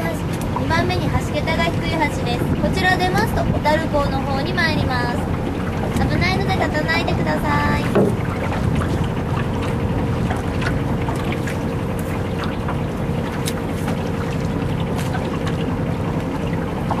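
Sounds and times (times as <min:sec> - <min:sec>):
wind noise on microphone: 0:00.0 - 0:11.6
boat engine droning: 0:00.0 - 0:17.0.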